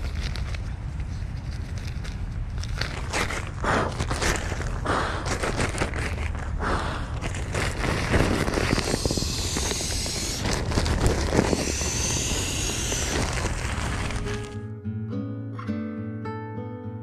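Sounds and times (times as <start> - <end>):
fabric rustling and crackling: 0.0 - 9.0
steady low rumble: 0.0 - 14.5.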